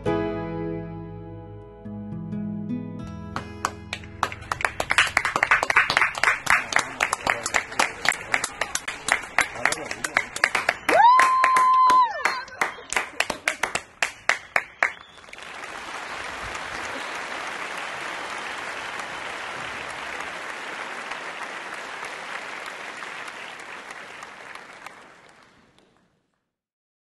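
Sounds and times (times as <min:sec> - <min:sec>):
single hand claps: 0:03.4 - 0:15.0
crowd applause: 0:03.4 - 0:26.4.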